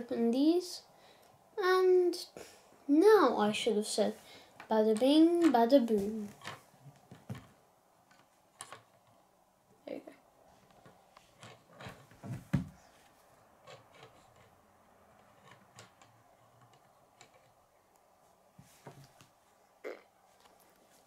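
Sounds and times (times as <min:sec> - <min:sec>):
plastic bricks clicking on table: 0:08.1 - 0:09.1.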